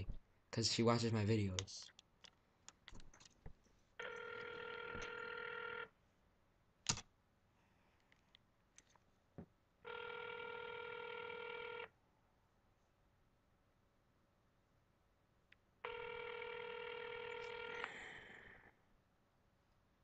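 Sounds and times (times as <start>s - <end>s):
telephone ringback tone: 4.0s - 5.9s, 9.9s - 11.9s, 15.8s - 17.9s.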